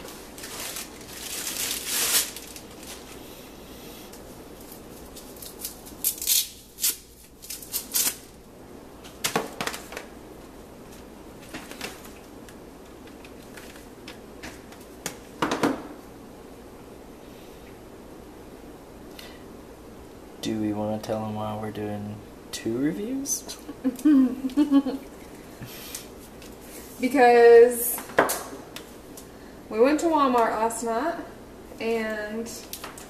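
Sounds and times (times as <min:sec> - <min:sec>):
cable clicks and rustles: 0:10.9 - 0:15.2.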